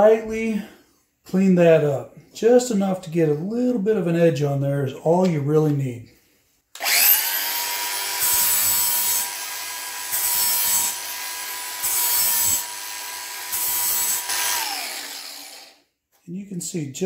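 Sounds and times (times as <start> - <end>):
angle grinder motor whine: 6.8 - 15.8
grinding on metal blade: 6.8 - 15.8.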